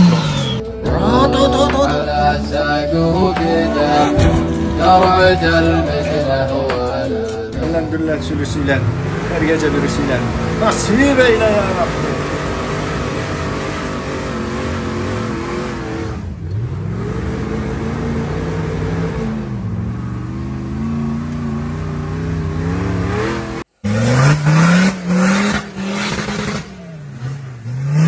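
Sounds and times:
off-road engine revving hard: 0:00.0 - 0:00.8, 0:07.6 - 0:28.0.

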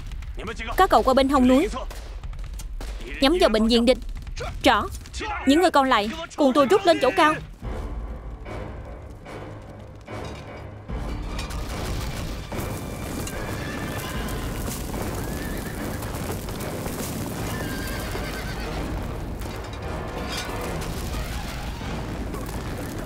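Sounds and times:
film score music: 0:00.0 - 0:23.0
hoofbeats clattering: 0:08.2 - 0:23.0
horses neighing: 0:13.0 - 0:19.6.

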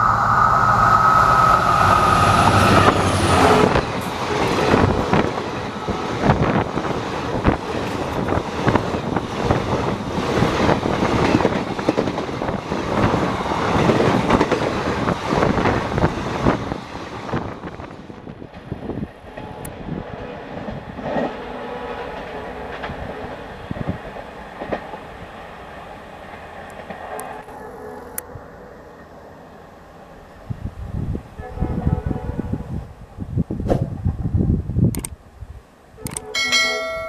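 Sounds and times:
rush of air: 0:00.0 - 0:05.0
train rumble: 0:00.0 - 0:35.1
train wheels clattering over rail joints: 0:02.5 - 0:16.6.

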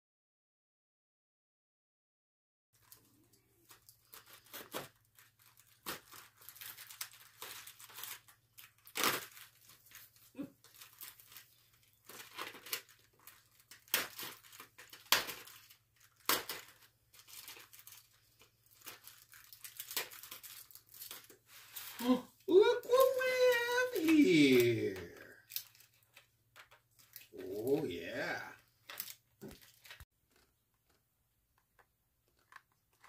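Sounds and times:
packaging tearing and crinkling: 0:03.7 - 0:22.1, 0:22.9 - 0:30.5.

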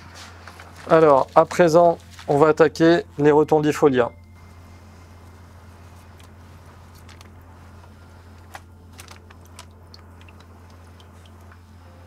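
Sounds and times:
steady low hum: 0:00.0 - 0:12.0
hands handling plants clicking: 0:06.1 - 0:11.6.

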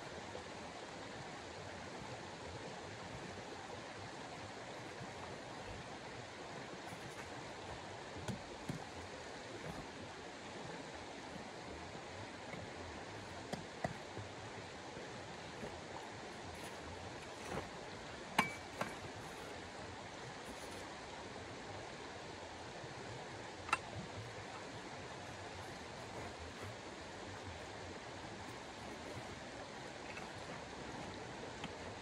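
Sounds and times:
camping gear clinks and knocks: 0:06.8 - 0:10.0, 0:15.5 - 0:19.6, 0:23.7 - 0:27.0, 0:28.4 - 0:32.0.

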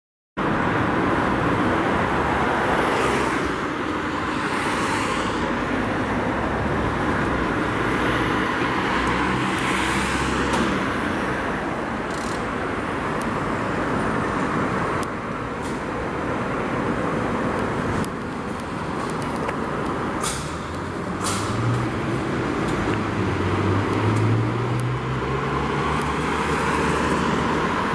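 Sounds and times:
road traffic passing: 0:00.4 - 0:27.9.

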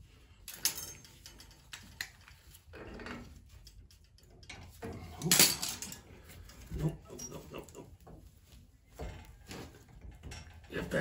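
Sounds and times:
metal tools clinking: 0:00.4 - 0:07.6.

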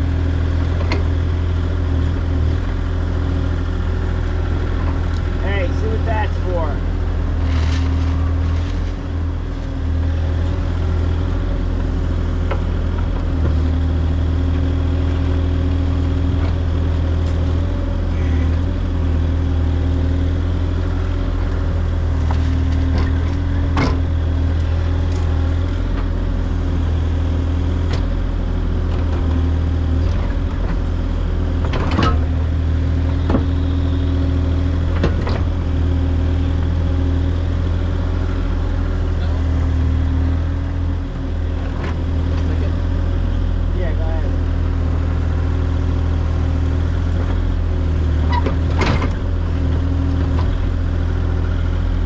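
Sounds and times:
excavator diesel engine running: 0:00.0 - 0:52.0
bucket digging soil: 0:07.4 - 0:09.0.

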